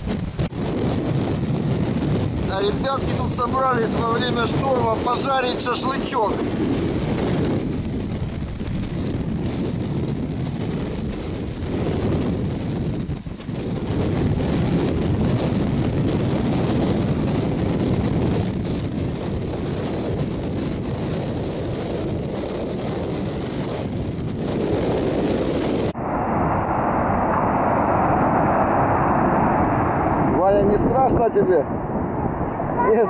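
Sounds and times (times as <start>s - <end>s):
surf breaking on shore: 0.0s - 24.0s
wind on microphone: 0.0s - 33.0s.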